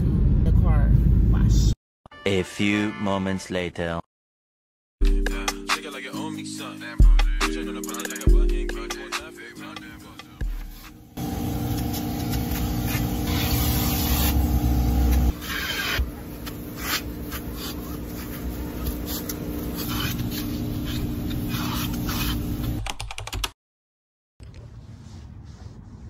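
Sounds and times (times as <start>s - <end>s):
nozzle scraping upholstery: 10.7s - 22.8s
vacuum motor humming: 11.2s - 21.5s.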